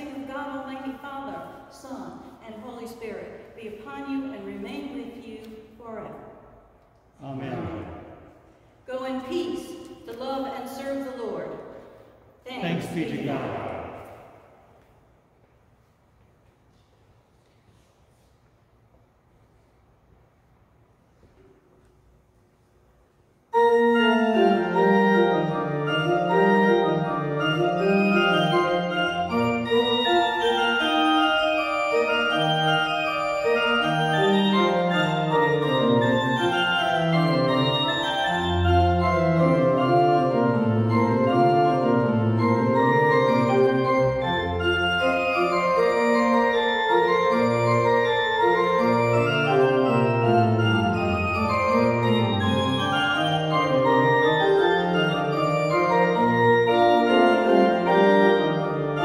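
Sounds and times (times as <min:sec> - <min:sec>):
pipe organ chords: 0:23.5 - 0:59.0
deep organ pedal notes: 0:23.6 - 0:59.0.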